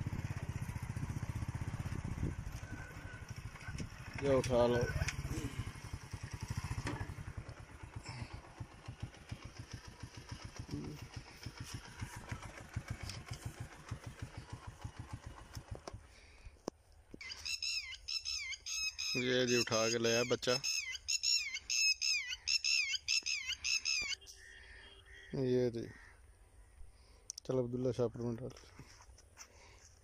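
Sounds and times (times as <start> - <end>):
small engine thumping: 3.7 - 16.8
birds chirping: 17.2 - 27.3.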